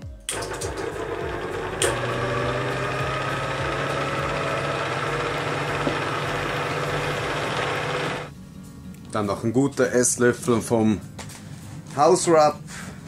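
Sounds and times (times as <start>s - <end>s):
stand mixer motor humming: 0.3s - 8.3s.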